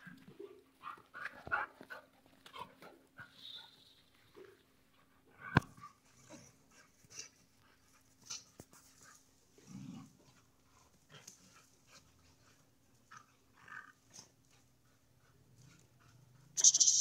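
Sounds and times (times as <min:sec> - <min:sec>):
dogs panting: 0:04.3 - 0:09.3, 0:10.2 - 0:16.6.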